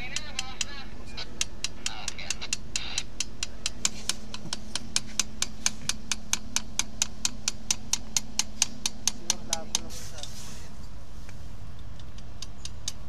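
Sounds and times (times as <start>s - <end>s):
steady low hum: 0.0s - 13.0s
hammer tapping on screwdriver: 1.4s - 9.9s.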